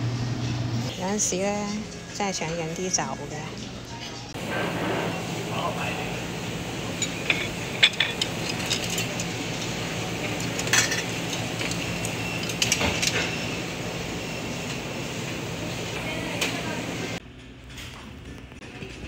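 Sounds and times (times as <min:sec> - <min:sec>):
steady low hum: 0:03.2 - 0:17.2.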